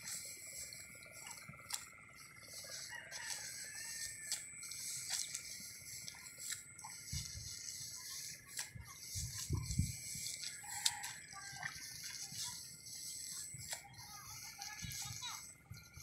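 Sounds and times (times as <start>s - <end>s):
high-pitched background hiss: 0.0s - 10.7s
rooster crowing: 2.6s - 5.0s, 10.4s - 11.8s.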